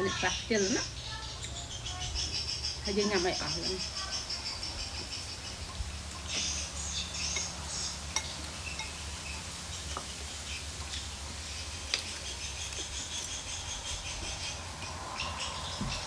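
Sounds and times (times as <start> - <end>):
faint high-pitched twittering: 0.0 - 10.7
spoons clinking on bowls: 7.3 - 9.1.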